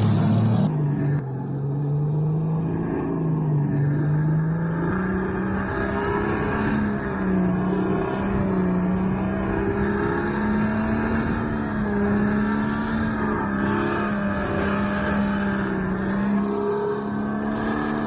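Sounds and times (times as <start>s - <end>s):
go-kart engine running: 0.0s - 1.2s.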